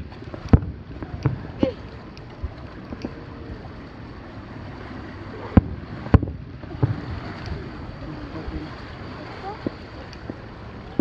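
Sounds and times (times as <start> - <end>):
distant fireworks bursting: 0.0 - 1.7, 5.4 - 7.8.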